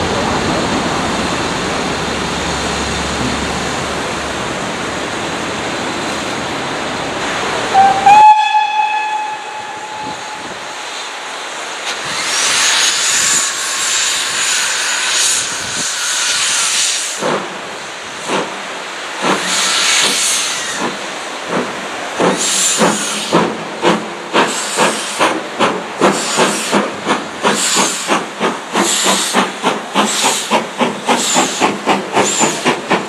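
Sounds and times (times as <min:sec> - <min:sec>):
loud steam hiss: 0:00.0 - 0:33.0
steam locomotive whistle: 0:07.7 - 0:10.6.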